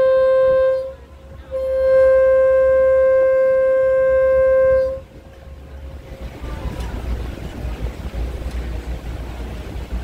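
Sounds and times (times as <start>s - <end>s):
boat horn blast: 0.0s - 7.4s
boat engine rumble: 0.0s - 10.0s
water noise: 0.0s - 10.0s.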